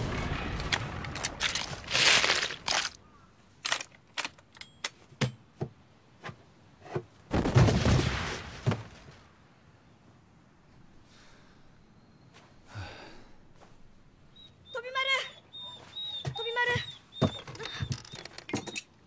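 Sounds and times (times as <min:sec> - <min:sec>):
heavy crash with low rumble: 0:00.0 - 0:02.7.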